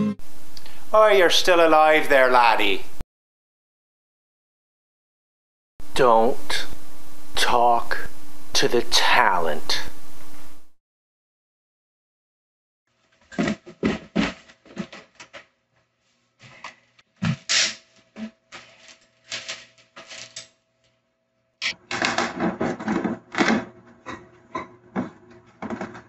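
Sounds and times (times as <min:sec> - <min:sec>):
clatter of clicks and knocks: 0:24.6 - 0:26.0.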